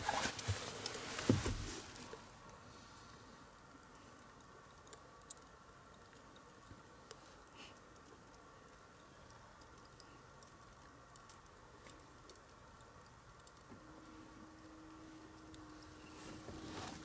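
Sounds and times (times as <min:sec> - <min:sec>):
faint background hiss: 0:00.0 - 0:17.0
faint steady hum: 0:00.0 - 0:17.0
small clicks: 0:03.7 - 0:14.7.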